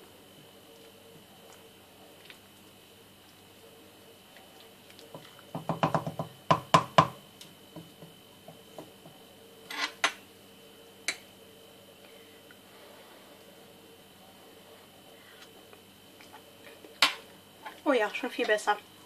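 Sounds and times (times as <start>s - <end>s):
spoon knocking on pot: 5.5s - 7.2s.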